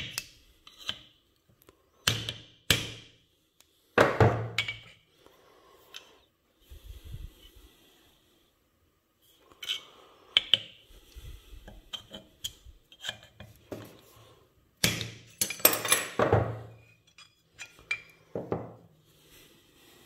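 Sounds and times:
loose metal parts clattering: 15.4s - 18.2s.

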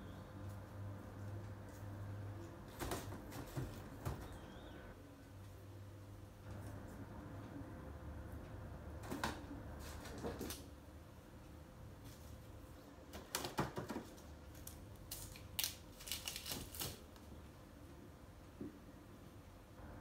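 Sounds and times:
low steady hum: 0.0s - 13.2s, 14.1s - 20.0s
roots clacking in wicker basket: 14.5s - 17.1s.

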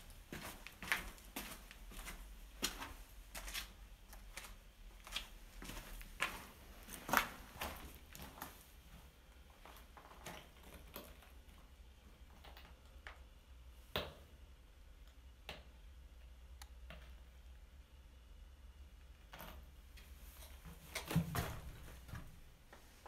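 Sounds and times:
footsteps on stone rubble: 0.3s - 8.6s.

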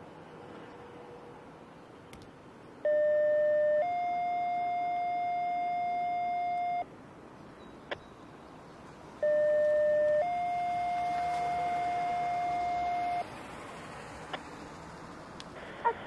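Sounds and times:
two-tone radio page: 15.6s - 16.0s.

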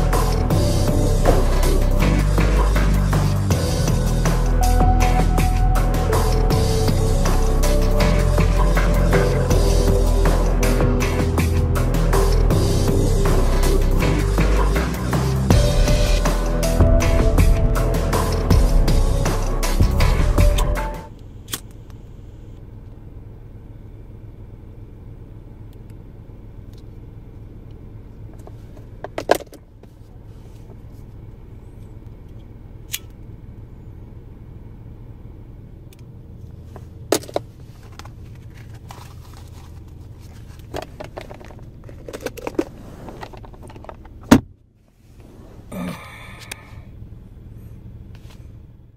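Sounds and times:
short pitched sound: 0.0s - 21.1s
car cabin hum: 0.0s - 48.9s.

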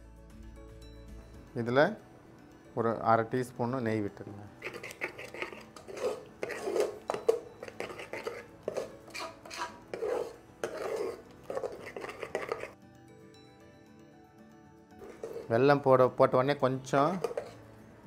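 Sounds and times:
spoon stirring thick wet filling: 4.5s - 12.8s, 15.0s - 15.6s, 16.9s - 17.8s.

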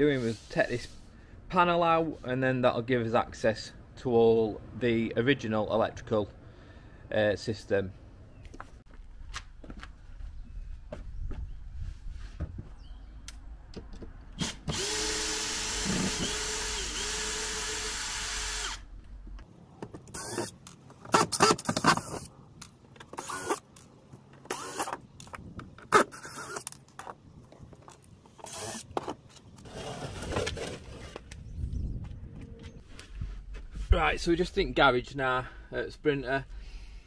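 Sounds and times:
cordless drill motor whirring: 14.4s - 18.9s, 20.2s - 20.5s, 23.2s - 23.6s, 24.5s - 25.0s, 28.4s - 28.9s.

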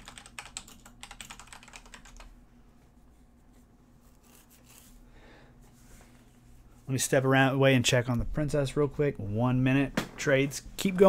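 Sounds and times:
keyboard typing: 0.0s - 2.3s
faint steady hum: 0.0s - 11.0s.

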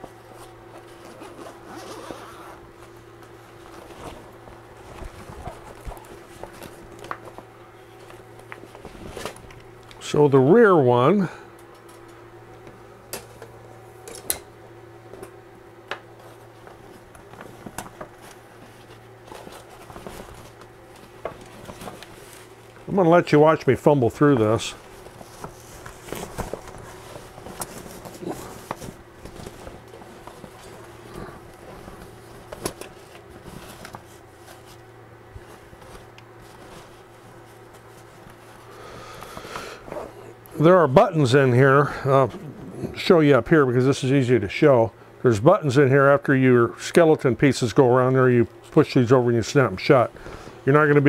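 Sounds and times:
steady low hum: 0.0s - 51.0s
fabric rustling: 0.1s - 9.5s, 16.2s - 23.2s, 24.2s - 38.8s.

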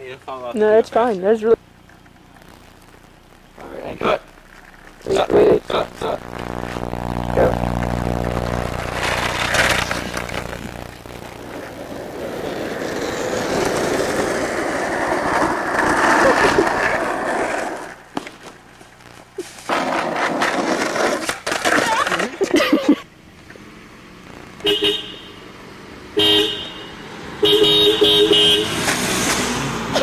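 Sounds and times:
skateboard wheels rolling on asphalt: 0.0s - 7.0s, 7.7s - 30.0s
steady low hum: 0.0s - 19.7s.

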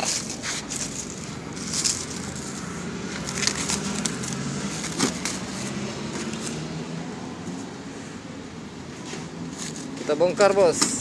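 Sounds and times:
plastic wrap crinkling: 0.0s - 5.4s.

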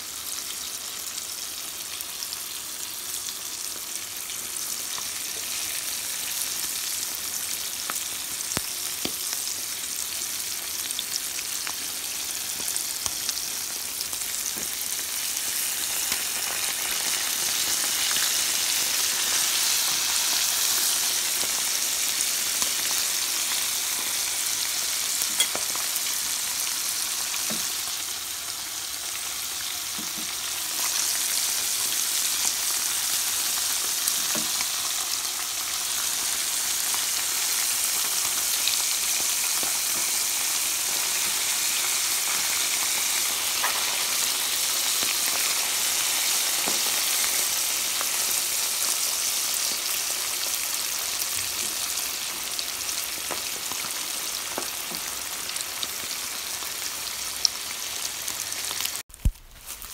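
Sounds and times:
vegetables sizzling in oil: 0.0s - 59.9s.

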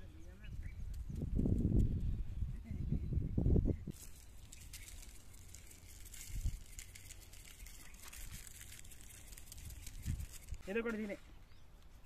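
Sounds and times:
salt shaken onto food: 3.9s - 11.0s.

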